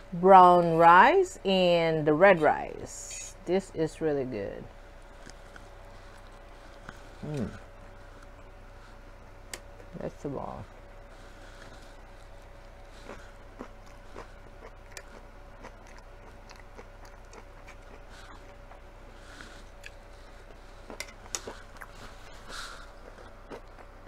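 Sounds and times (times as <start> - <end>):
faint steady hum: 0.0 - 24.0
person chewing food: 5.0 - 9.9, 11.0 - 24.0.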